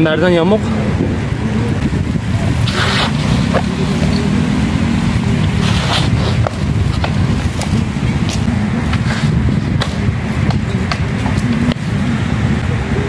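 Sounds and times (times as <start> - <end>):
road traffic: 0.0 - 13.0
wind on microphone: 0.0 - 13.0
bike clicks and knocks: 5.6 - 11.9.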